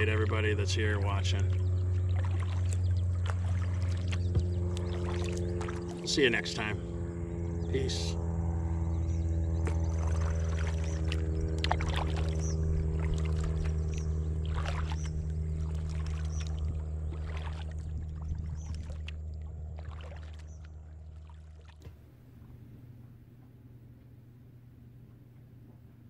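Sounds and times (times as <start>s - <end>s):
paddle splashing in water: 0.0s - 6.4s, 9.6s - 22.6s
steady low hum: 0.0s - 26.0s.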